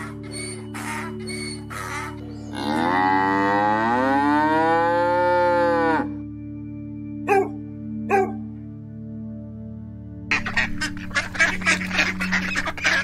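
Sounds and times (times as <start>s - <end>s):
farm animal calling: 0.0s - 4.0s, 10.3s - 13.0s
soft background music: 0.0s - 13.0s.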